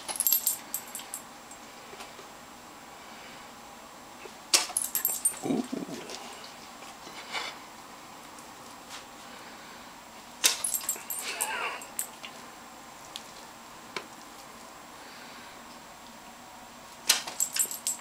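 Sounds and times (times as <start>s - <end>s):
dog snapping its jaws: 17.1s - 17.4s.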